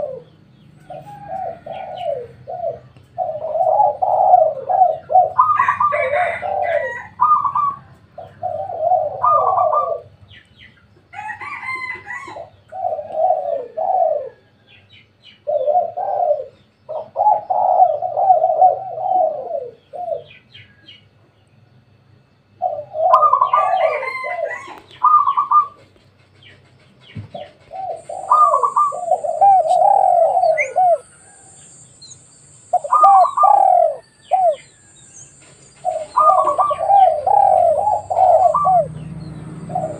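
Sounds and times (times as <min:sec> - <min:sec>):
doves cooing: 0:00.0 - 0:10.5, 0:11.1 - 0:21.0, 0:22.3 - 0:39.9
small birds chirping: 0:00.0 - 0:11.3, 0:12.0 - 0:39.9.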